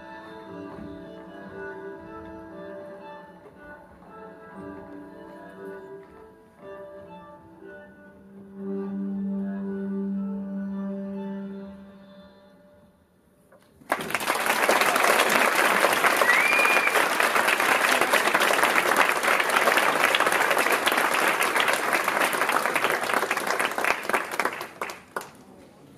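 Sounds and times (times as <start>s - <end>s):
audience applauding: 13.8s - 25.5s
rising whistle from crowd: 16.1s - 17.2s.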